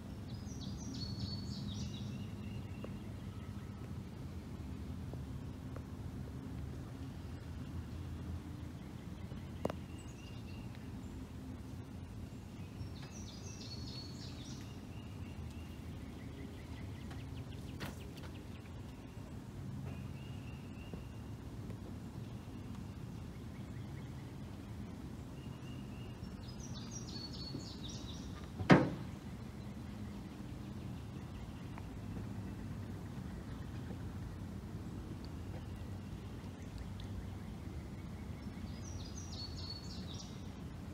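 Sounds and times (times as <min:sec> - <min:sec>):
low background noise: 0:00.0 - 0:40.9
high trilling bird song: 0:00.2 - 0:03.9, 0:12.0 - 0:21.4, 0:22.2 - 0:34.0, 0:35.4 - 0:40.5
birds calling: 0:06.9 - 0:40.6.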